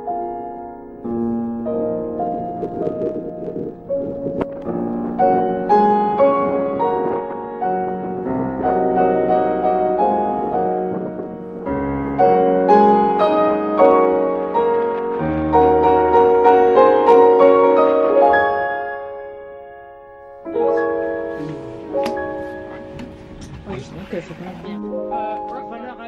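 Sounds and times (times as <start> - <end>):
gentle piano melody: 0.0 - 26.0
low bass notes: 0.8 - 13.5.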